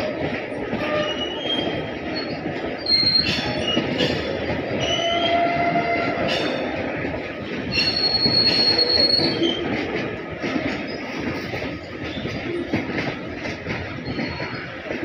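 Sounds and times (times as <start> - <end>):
train wheels rumbling on rail: 0.0 - 15.0
wheel squeals: 7.7 - 9.7, 14.0 - 14.8.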